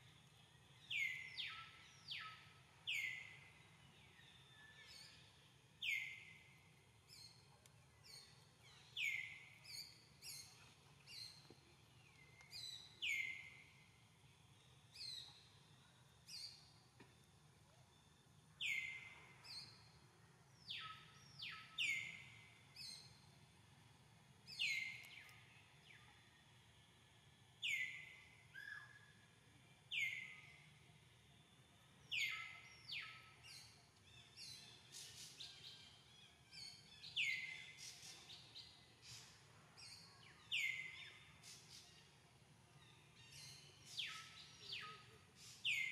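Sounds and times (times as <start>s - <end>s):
birds chirping: 24.5s - 26.3s.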